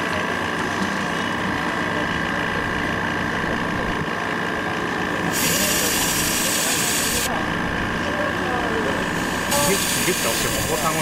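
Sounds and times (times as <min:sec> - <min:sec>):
steady two-tone background hum: 0:00.0 - 0:11.0
sandblasting gun hissing: 0:05.3 - 0:07.3, 0:09.0 - 0:11.0.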